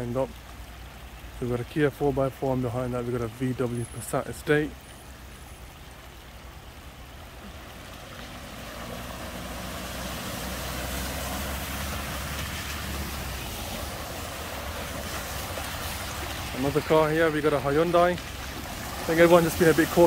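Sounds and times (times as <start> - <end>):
water splashing from tyres: 0.0 - 20.0
low engine hum: 4.8 - 20.0.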